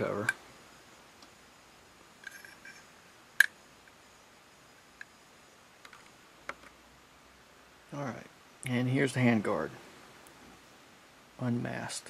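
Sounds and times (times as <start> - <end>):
faint ticks: 5.0 - 5.2.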